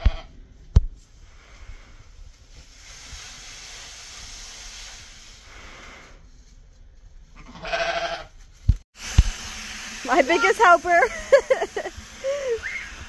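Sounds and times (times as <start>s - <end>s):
sheep bleating: 7.4s - 8.3s.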